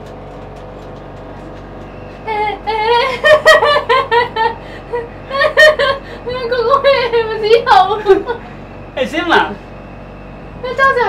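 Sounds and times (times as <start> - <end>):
steady low hum: 0.0 - 11.0
woman laughing hard: 2.3 - 6.3, 7.9 - 8.5.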